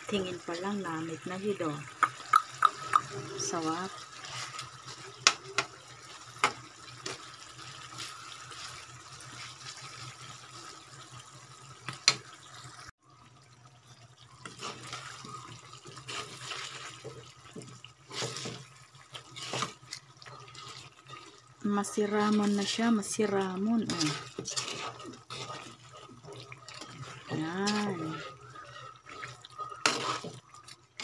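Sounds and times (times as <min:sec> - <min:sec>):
sauce simmering: 0:00.0 - 0:31.0
spatula scraping a wok: 0:03.2 - 0:05.3, 0:14.4 - 0:31.0.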